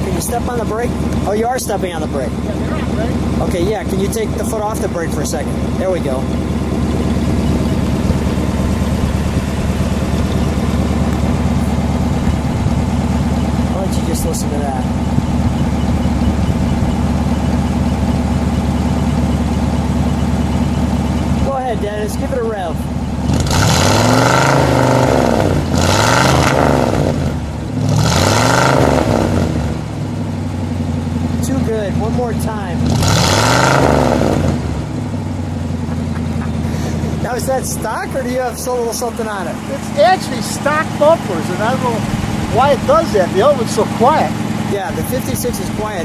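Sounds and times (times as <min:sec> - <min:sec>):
car engine idling: 0:00.0 - 0:46.0.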